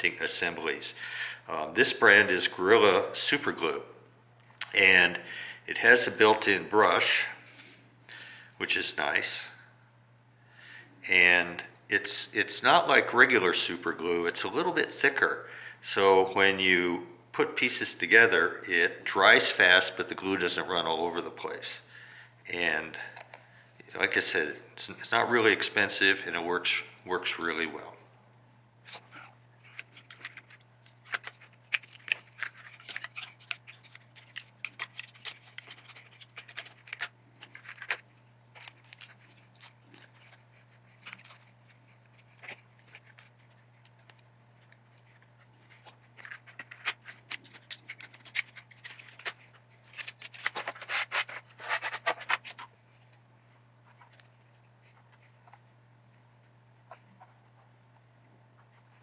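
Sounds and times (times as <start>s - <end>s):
razor blade scraping plastic: 29.7s - 52.7s.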